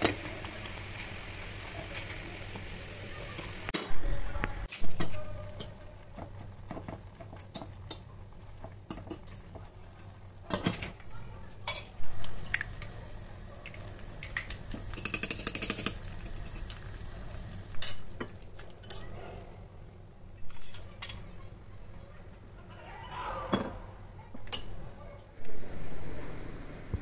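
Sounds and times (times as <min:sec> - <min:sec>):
egg sizzling in hot oil: 0:00.0 - 0:03.8, 0:12.0 - 0:19.0.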